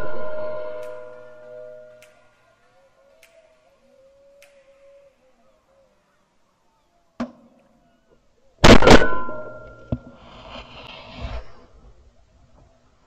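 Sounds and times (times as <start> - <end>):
shotgun shots: 8.6 - 9.7.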